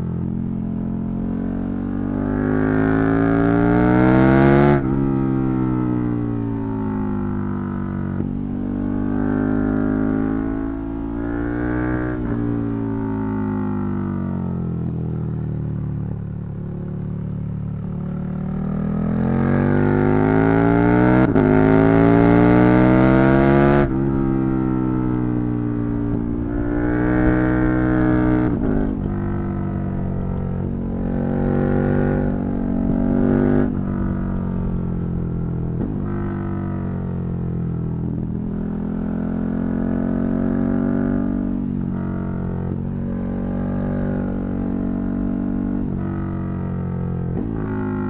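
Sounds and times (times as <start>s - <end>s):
motorcycle engine revving: 16.2s - 48.0s.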